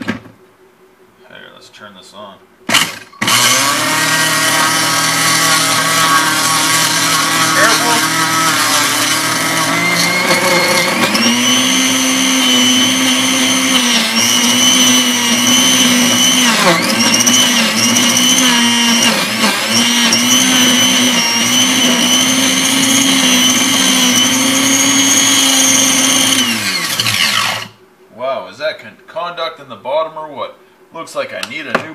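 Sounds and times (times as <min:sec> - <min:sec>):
blender motor whining: 0:02.7 - 0:27.8.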